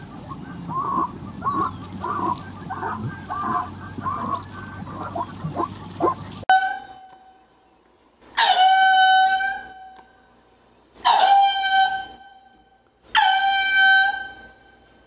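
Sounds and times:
lemur calling: 0.0 - 6.9.

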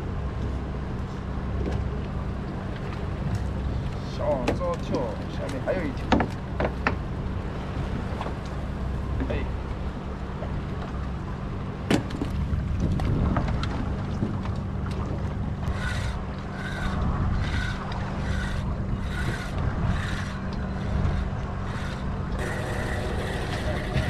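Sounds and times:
boat engine humming: 0.0 - 24.0
wind: 0.0 - 24.0
fishing reel being cranked: 15.7 - 24.0.

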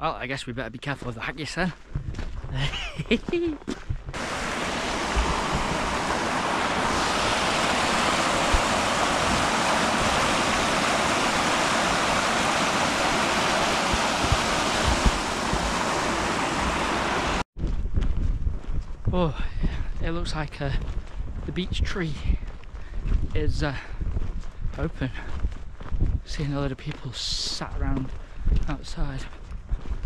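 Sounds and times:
flowing water rushing: 4.2 - 17.5.

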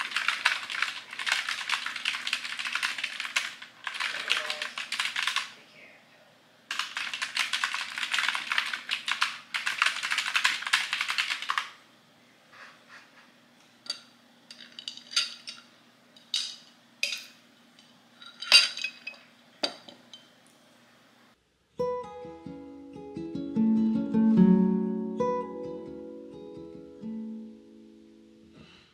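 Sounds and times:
fast typing on keyboard: 0.0 - 5.6, 6.7 - 11.8.

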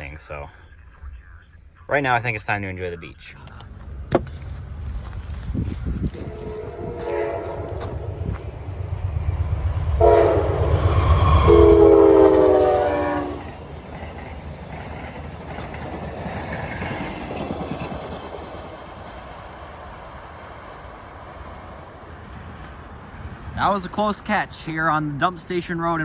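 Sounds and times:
train cars rumbling and clattering: 3.4 - 26.0
train horn blast: 6.1 - 8.5, 9.9 - 13.6.

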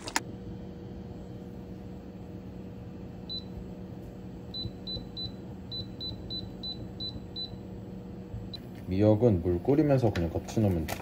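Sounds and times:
steady low hum: 0.0 - 11.0
cooktop touch control beeps: 3.2 - 3.6, 4.5 - 7.6.

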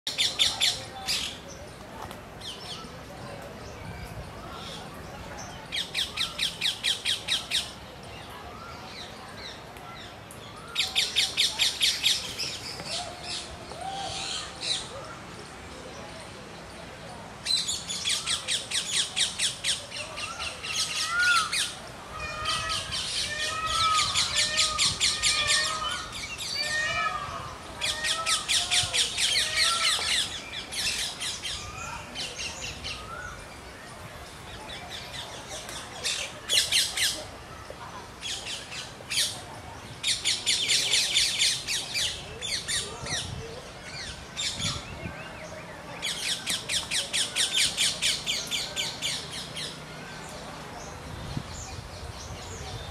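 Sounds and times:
parakeets screeching: 20.2 - 33.3.

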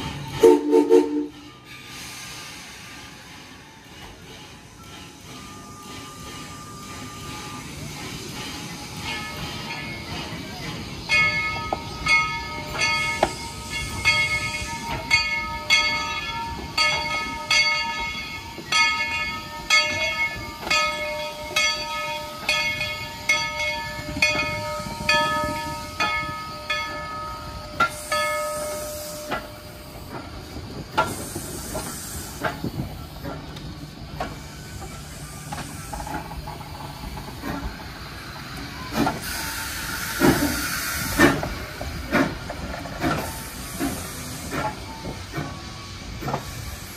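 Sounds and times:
steam hissing: 0.0 - 46.9
locomotive bell ringing: 3.8 - 30.8.

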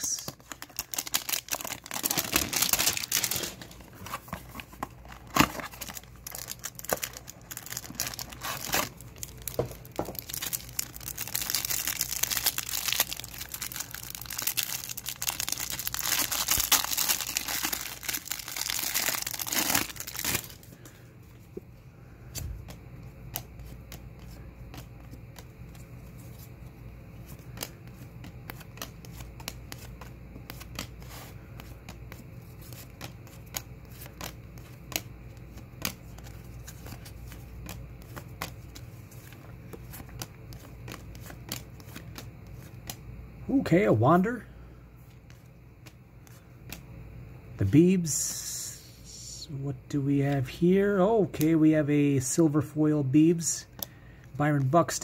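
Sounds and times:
plastic wrapper crinkling and tearing: 0.2 - 20.7.

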